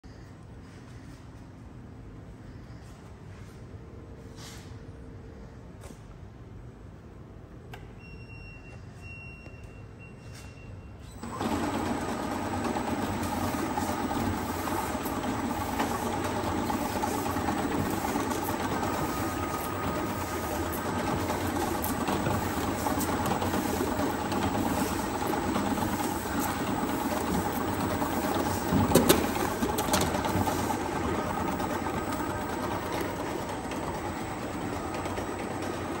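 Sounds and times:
labeling machine whirring: 0:11.1 - 0:36.0.

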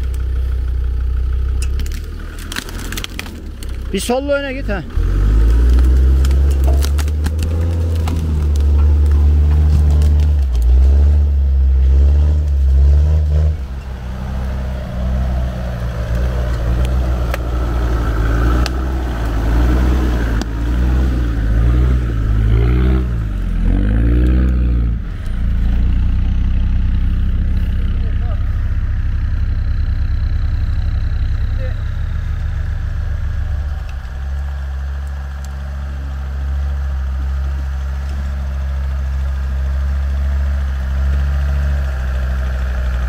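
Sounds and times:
off-road engine pulling: 0:00.0 - 0:43.0
knocks and rattles: 0:05.5 - 0:11.0.

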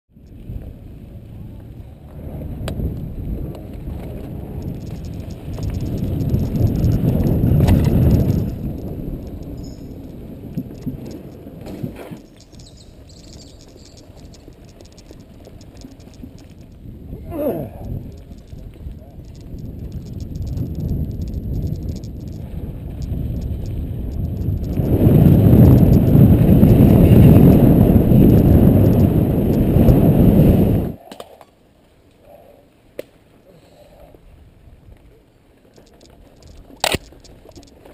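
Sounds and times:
bike tyres on dirt trail: 0:00.1 - 0:31.0, 0:32.8 - 0:37.9
wind rumble: 0:00.1 - 0:31.0
bike rattles and knocks: 0:02.1 - 0:16.9, 0:17.8 - 0:29.1, 0:35.7 - 0:37.9
faint bird chirps: 0:12.3 - 0:15.0
sharp click: 0:35.8 - 0:37.8.

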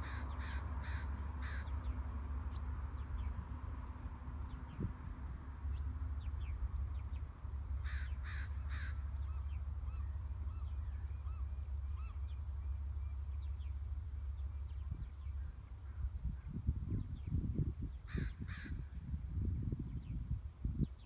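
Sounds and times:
crow cawing: 0:00.0 - 0:01.7, 0:07.8 - 0:09.1, 0:18.1 - 0:18.8
birds chirping: 0:00.0 - 0:18.9.

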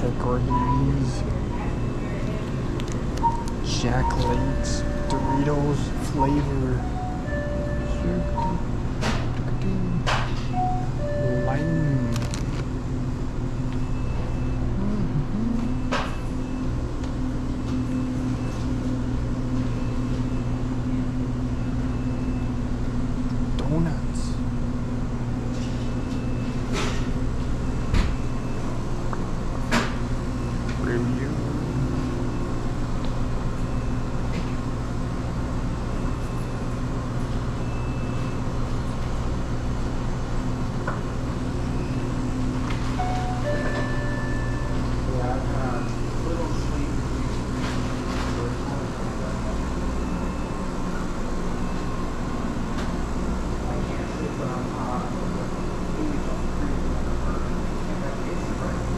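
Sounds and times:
cooling equipment hum: 0:00.0 - 0:58.9
faint short tones: 0:10.5 - 0:12.6.

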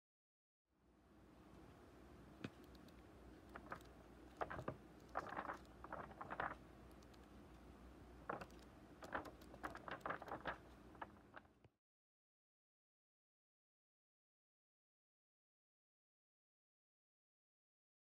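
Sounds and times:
low room hiss: 0:00.8 - 0:11.6
book pages turning: 0:03.5 - 0:07.2, 0:08.2 - 0:11.5.

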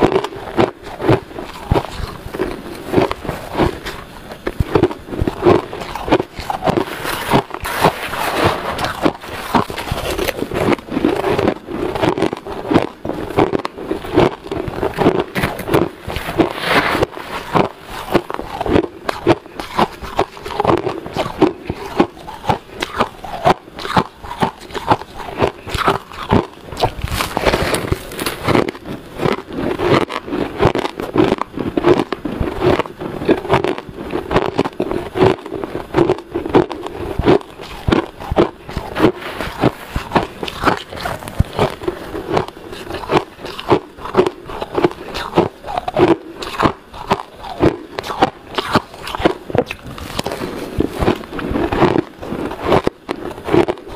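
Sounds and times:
chewing crunchy shaved ice: 0:00.0 - 0:53.9.

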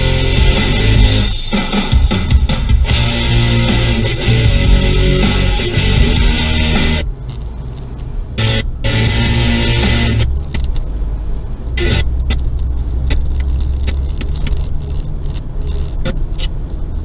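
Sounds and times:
car road and engine rumble: 0:00.0 - 0:17.0
small clicks and rattles: 0:07.2 - 0:08.2, 0:10.4 - 0:10.9, 0:12.2 - 0:17.0.

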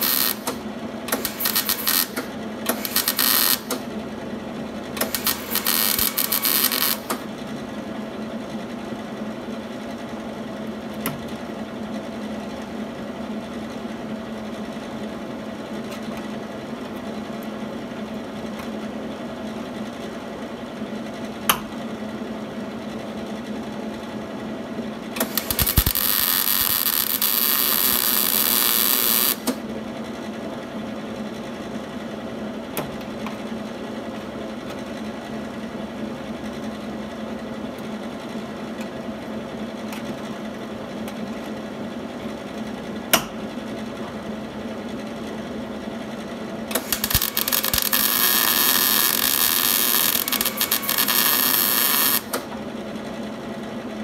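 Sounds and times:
sharp click: 0:00.0 - 0:03.8, 0:25.2 - 0:26.7
welding arc crackling: 0:00.0 - 0:03.8, 0:05.0 - 0:07.2, 0:25.2 - 0:29.6, 0:46.8 - 0:52.4
steady welder hum: 0:00.0 - 0:08.1, 0:25.2 - 0:29.7, 0:46.7 - 0:52.6.

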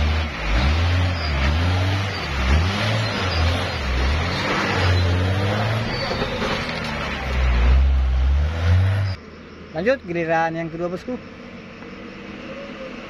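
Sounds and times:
diesel truck engine labouring: 0:00.0 - 0:09.2
tyres rumbling on dirt road: 0:00.0 - 0:13.0.

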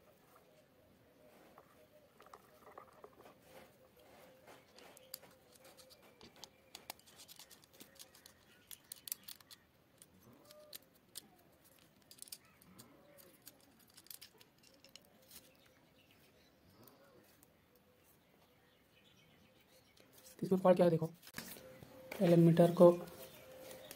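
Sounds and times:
faint clicks and handling noise: 0:01.5 - 0:18.6, 0:23.0 - 0:23.9.

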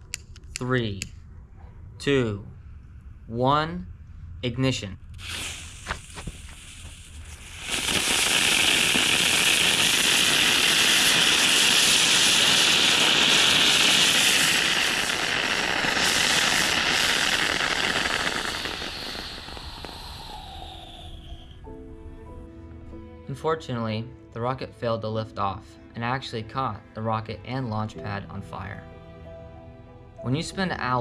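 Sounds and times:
rocket motor burning with hiss: 0:05.1 - 0:21.7.

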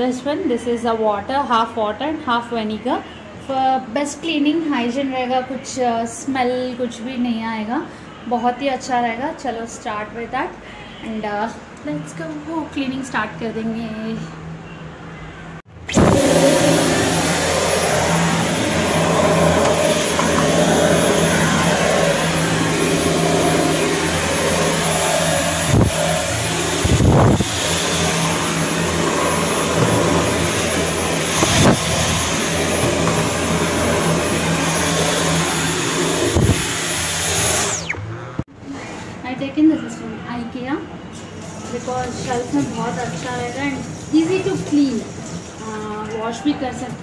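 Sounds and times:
vacuum cleaner running: 0:15.7 - 0:38.5.

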